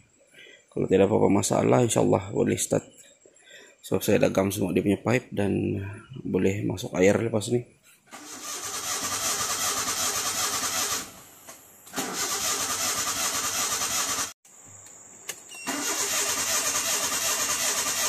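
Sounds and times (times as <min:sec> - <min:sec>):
car engine cranking: 0:08.1 - 0:14.4, 0:15.7 - 0:18.0.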